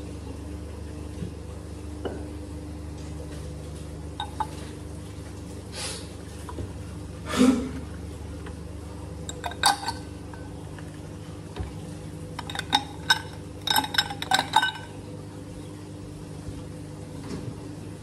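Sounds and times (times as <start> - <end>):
steady low hum: 0.0 - 18.0
ice cubes clinking in glass: 4.2 - 4.6, 9.3 - 10.1, 12.4 - 15.0.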